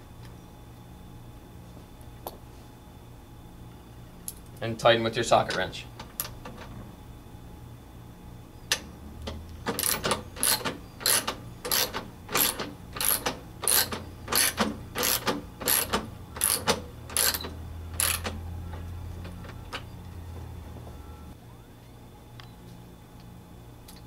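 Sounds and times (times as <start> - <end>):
socket wrench ratchet clicking: 9.7 - 18.4.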